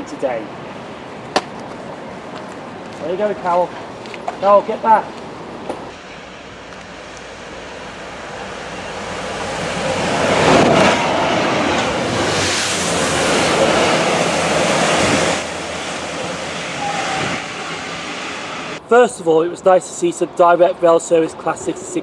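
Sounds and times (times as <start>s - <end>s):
diesel locomotives passing at speed: 5.0s - 18.8s
loud hiss of water jets: 11.9s - 18.8s.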